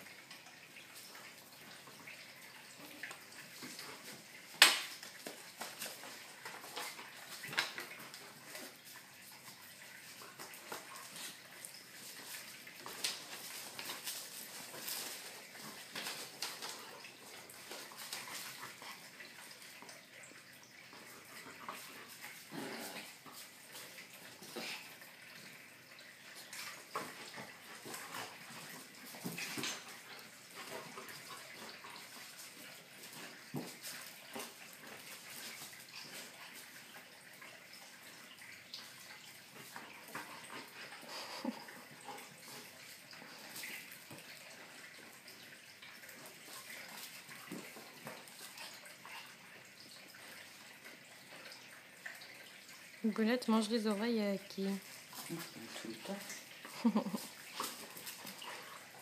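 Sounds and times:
dogs scuffling: 2.9s - 20.0s.

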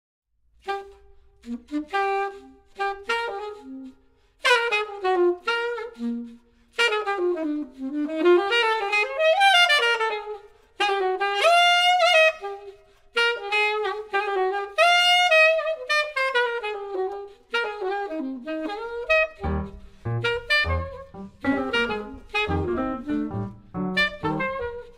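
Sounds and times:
solo jazz saxophone: 0.6s - 24.9s
low accompanying notes: 19.2s - 24.9s.

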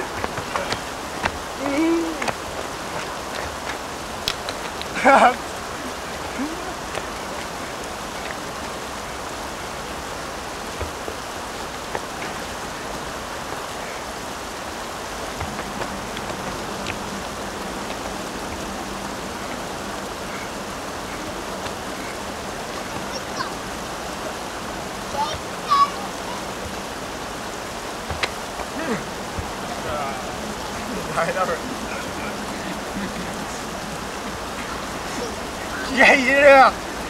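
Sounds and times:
river water rushing: 0.0s - 37.0s
faint taps: 28.1s - 28.7s.

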